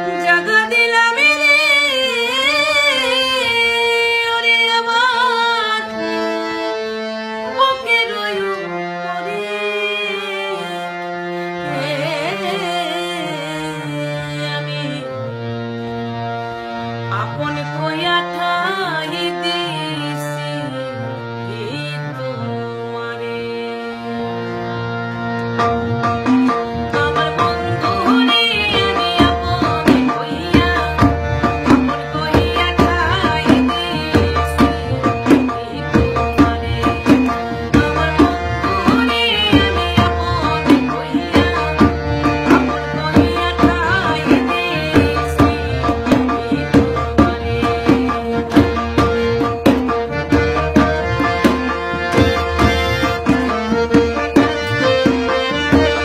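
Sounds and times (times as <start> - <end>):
woman singing: 0.0 - 6.5, 7.4 - 15.3, 17.1 - 24.2, 26.7 - 49.9, 51.1 - 56.0
harmonium chords: 0.0 - 56.0
tabla rhythm: 25.4 - 56.0.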